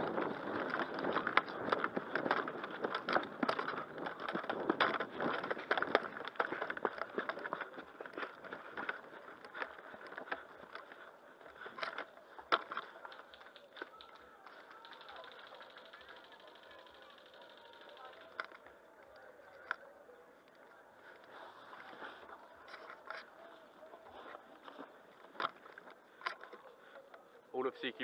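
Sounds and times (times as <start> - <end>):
footsteps: 0.0 - 15.6
gear rattling: 0.0 - 18.6.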